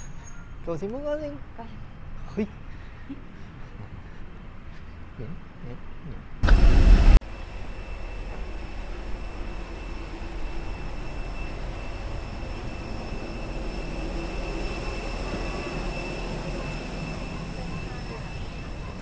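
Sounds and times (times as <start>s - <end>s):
loud rush of noise: 6.4s - 17.8s
mechanical drone: 6.4s - 19.0s
thin high whine: 6.4s - 19.0s.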